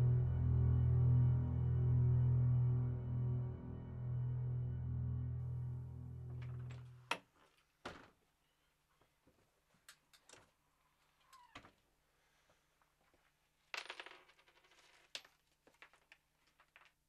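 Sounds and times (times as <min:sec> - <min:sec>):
small objects clicking and tapping: 0:13.8 - 0:17.0.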